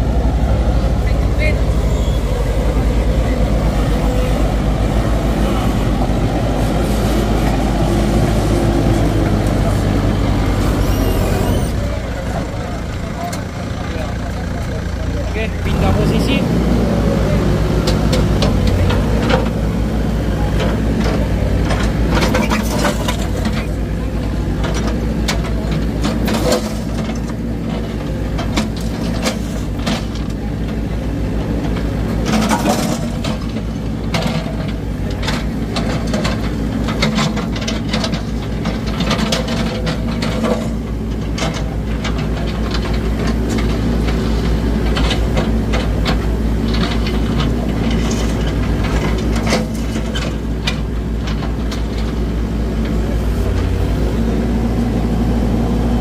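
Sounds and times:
heavy engine running: 0:00.0 - 0:56.0
knocks and clatter: 0:31.6 - 0:52.2.

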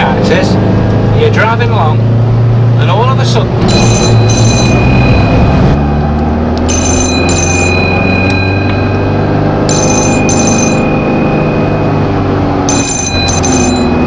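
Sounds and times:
van engine droning: 0:00.0 - 0:14.0
mobile phone ringing: 0:03.6 - 0:05.7, 0:06.6 - 0:14.0.

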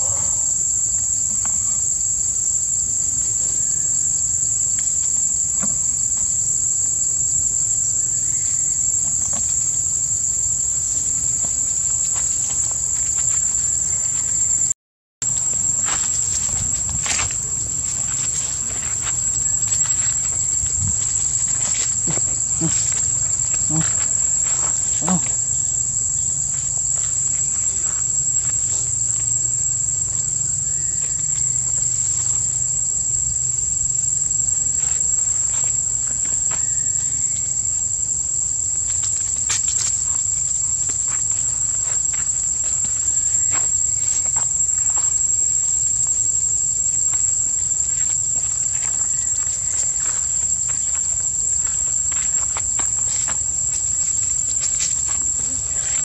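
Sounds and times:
high-pitched insect drone: 0:00.0 - 0:56.0
rustles of dry leaf litter: 0:15.2 - 0:29.4, 0:34.2 - 0:56.0.

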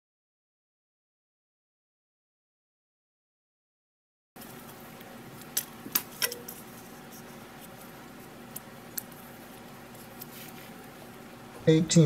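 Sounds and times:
steady faint hum: 0:04.4 - 0:12.0.

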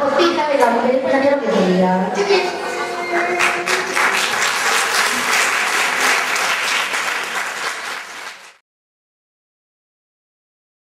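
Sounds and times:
audience applauding: 0:02.9 - 0:08.6.

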